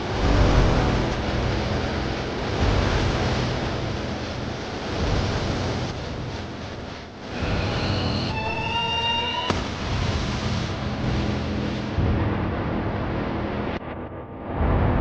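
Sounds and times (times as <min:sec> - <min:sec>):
boat engine running: 0:00.0 - 0:08.2.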